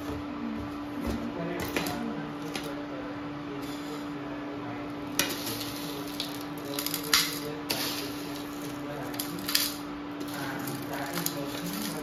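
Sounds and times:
steady low hum: 0.0 - 12.0
cereal flakes rattling into bowl: 5.2 - 12.0.

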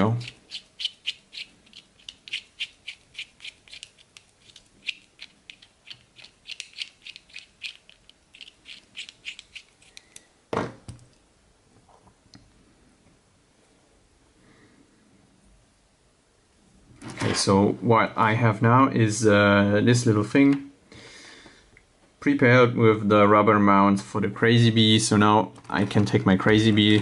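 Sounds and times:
rubber grommets squeaking on screw: 0.0 - 10.3
faint handling of small parts: 0.0 - 12.6.

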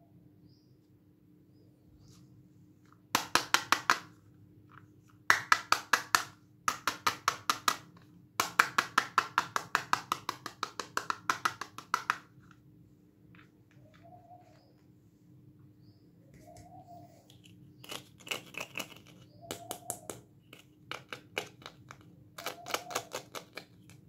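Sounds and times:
rapid taps on plastic toy guitar: 5.3 - 12.3.

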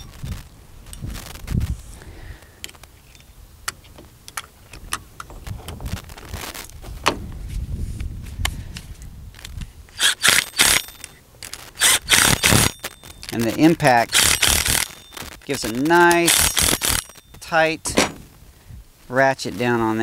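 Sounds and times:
steel cable clinking and scraping: 9.4 - 18.3
impact driver bursts: 10.0 - 11.1, 11.8 - 13.0, 14.0 - 15.4, 16.1 - 17.2.

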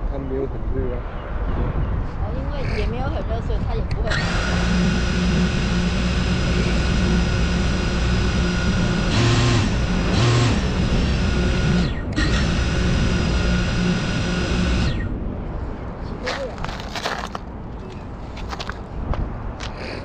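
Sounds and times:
drone motors whining: 4.0 - 15.2.

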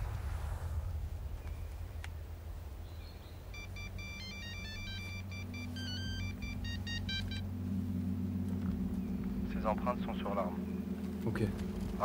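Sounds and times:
low steady drone: 0.0 - 12.0
phone ringtone beeping melody: 3.6 - 7.5.

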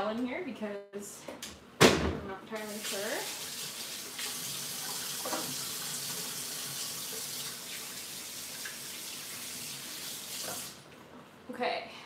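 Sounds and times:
tap running into a sink: 4.2 - 5.8, 10.3 - 10.8.

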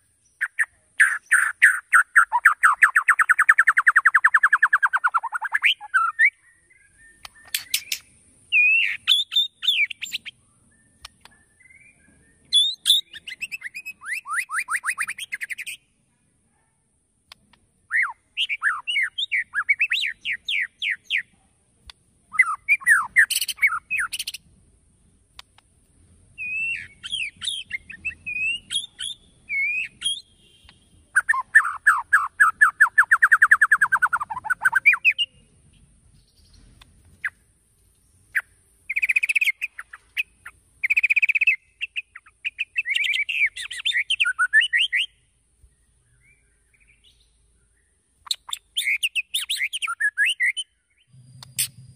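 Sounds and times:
bird singing whistles and trills: 0.2 - 15.8, 17.9 - 21.3, 22.3 - 24.4, 26.4 - 35.6, 38.0 - 51.9
bird chattering: 7.2 - 10.4, 22.3 - 24.4, 26.4 - 35.4, 48.2 - 50.6.

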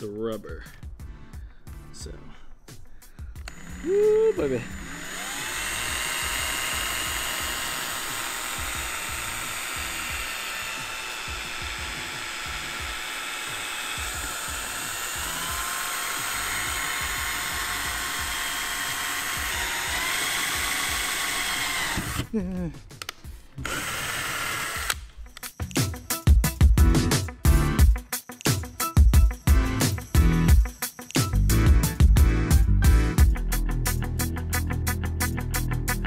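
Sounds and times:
power drill whining: 3.4 - 22.3, 23.6 - 25.2.

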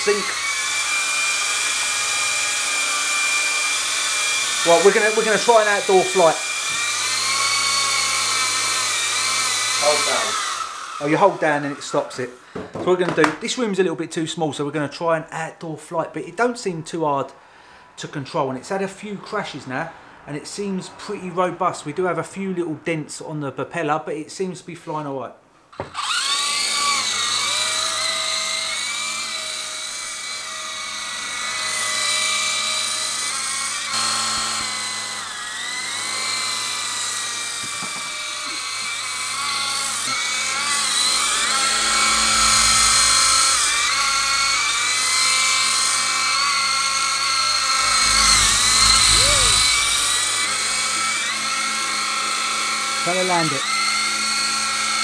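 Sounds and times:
toy helicopter motor whining: 0.0 - 12.6, 25.8 - 55.0
low rumble: 47.6 - 50.8.

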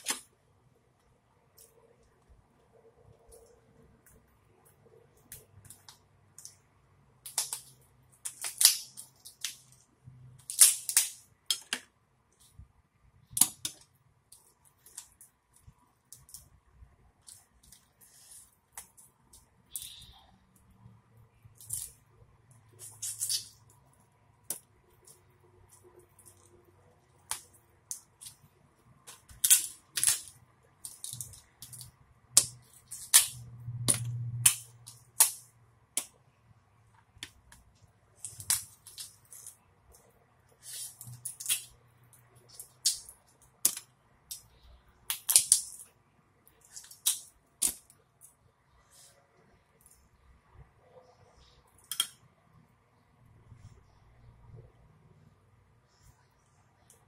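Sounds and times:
lobster shells cracking: 45.1 - 45.9.

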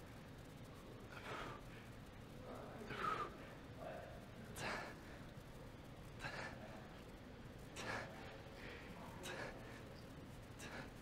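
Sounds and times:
man breathing hard: 7.8 - 9.9, 10.6 - 11.0.

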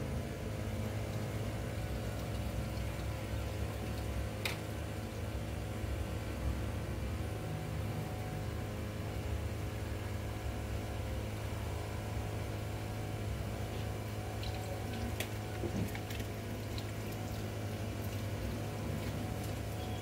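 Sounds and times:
steady low hum: 0.0 - 20.0
water splashing into a sink: 14.3 - 20.0.

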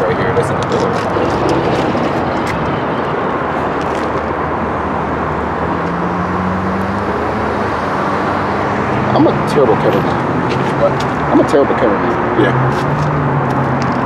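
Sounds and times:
road traffic: 0.0 - 14.0.

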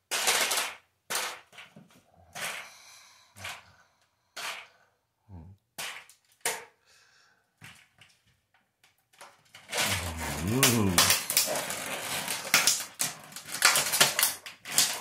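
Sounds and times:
plastic toy cracking: 0.1 - 2.6, 5.8 - 6.7, 8.8 - 15.0
plastic creaking: 9.2 - 15.0.

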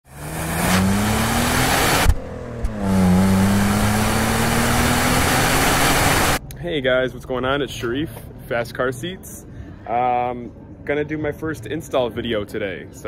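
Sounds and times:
car engine accelerating: 0.0 - 6.4.

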